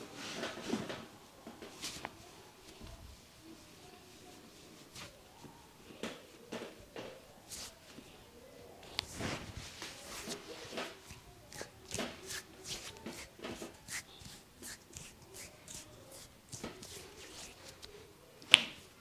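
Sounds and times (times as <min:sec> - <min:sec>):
hands tapping and slapping head: 0:10.2 - 0:18.8.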